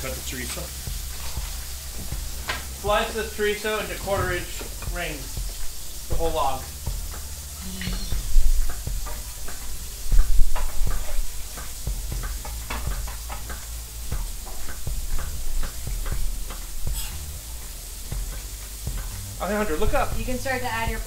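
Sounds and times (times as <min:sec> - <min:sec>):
fish sizzling in a pan: 0:00.0 - 0:21.0.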